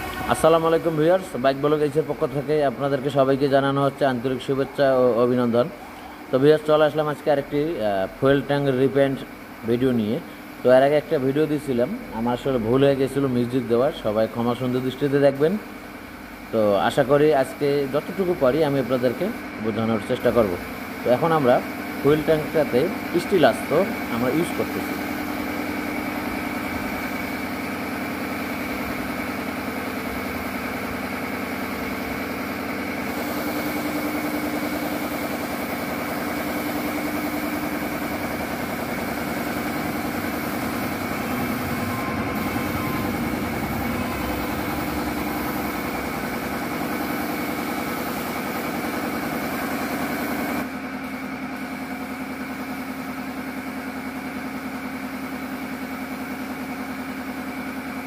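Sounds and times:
spray gun hissing: 0.0s - 3.8s, 4.5s - 12.2s, 12.8s - 58.0s
air compressor humming: 0.0s - 58.0s.

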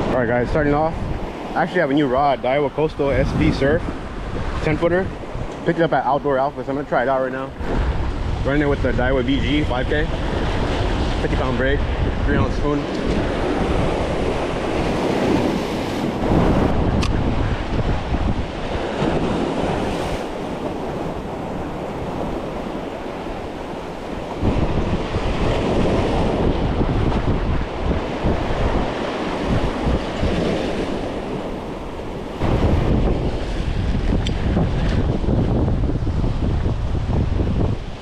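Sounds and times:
surf washing against rocks: 0.0s - 38.0s
wind buffeting microphone: 0.0s - 38.0s.

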